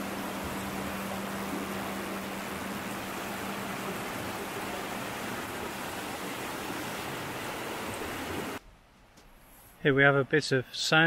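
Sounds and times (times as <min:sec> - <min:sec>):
stream rushing over rocks: 0:00.0 - 0:08.6.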